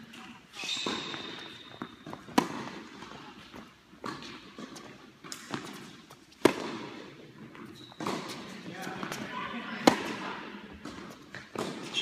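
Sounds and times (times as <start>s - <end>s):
tennis ball struck and bouncing: 0.8s - 3.1s, 4.0s - 7.0s, 9.8s - 11.9s
racket hitting ball: 0.8s - 3.2s, 4.0s - 7.0s, 9.8s - 12.0s.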